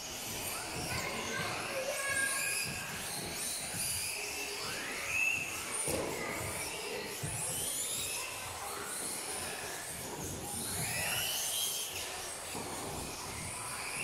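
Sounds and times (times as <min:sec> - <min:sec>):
toy car motors whining: 0:00.0 - 0:14.0.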